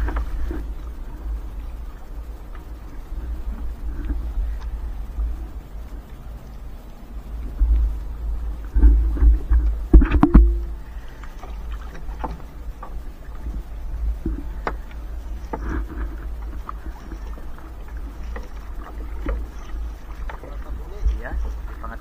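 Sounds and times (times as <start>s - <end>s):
steady low rumble: 0.0s - 22.0s
water splashing against boat hull: 7.3s - 22.0s
knocks and thumps: 8.8s - 10.7s.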